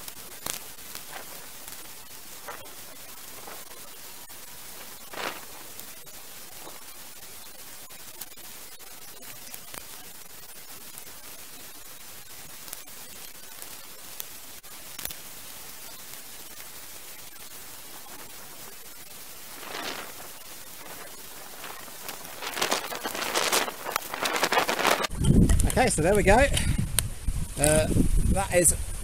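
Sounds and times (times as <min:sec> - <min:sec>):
stream running over stones: 0:19.4 - 0:25.1.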